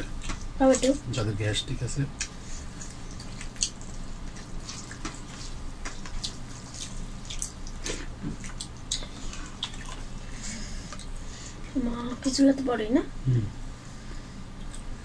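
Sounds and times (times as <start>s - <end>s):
mouths chewing: 2.2s - 11.2s.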